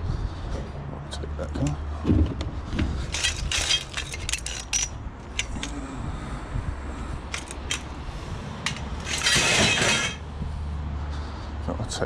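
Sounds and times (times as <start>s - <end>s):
metal tubes scraping: 3.0s - 5.8s, 7.3s - 10.3s
metal tubes knocking and clinking: 3.1s - 5.8s, 7.3s - 8.0s, 8.6s - 10.3s.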